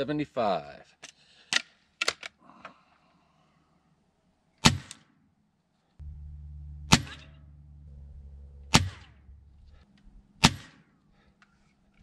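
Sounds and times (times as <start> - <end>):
air rifle shot: 4.6 - 5.1, 6.9 - 7.3, 8.7 - 9.1, 10.4 - 10.9.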